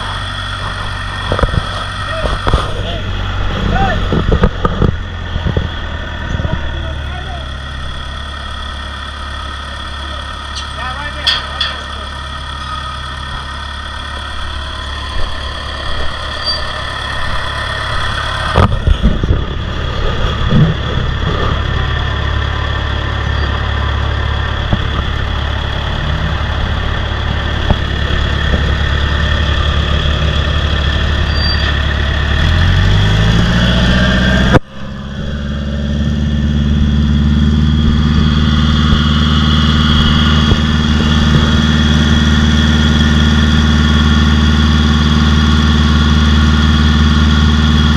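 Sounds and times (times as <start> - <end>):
heavy machinery engine running: 0.0 - 47.9
metal clanks: 10.5 - 12.8.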